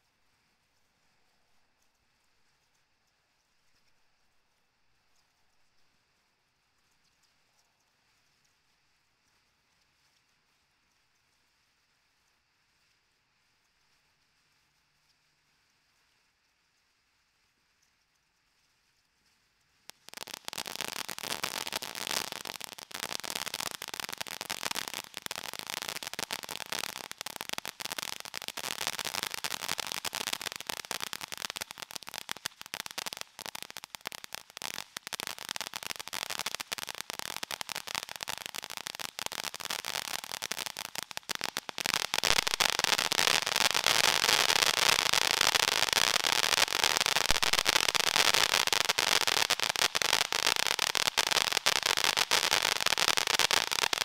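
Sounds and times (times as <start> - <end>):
firework fountain hissing and crackling: 19.9 - 54.0.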